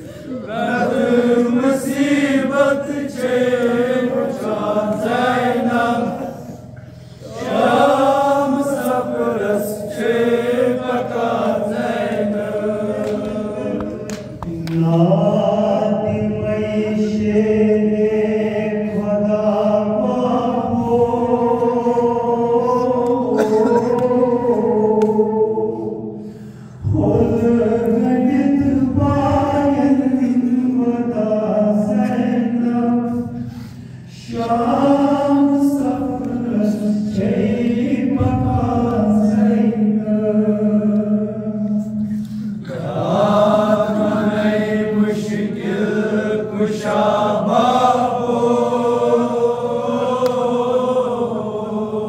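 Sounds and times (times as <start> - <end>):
male voices chanting together: 0.0 - 52.0.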